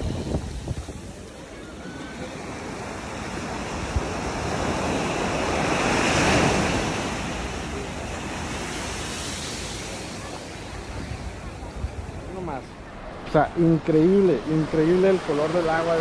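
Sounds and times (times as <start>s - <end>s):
wind on microphone: 0.0s - 1.4s, 10.9s - 15.6s
small waves breaking on sand: 0.0s - 16.0s.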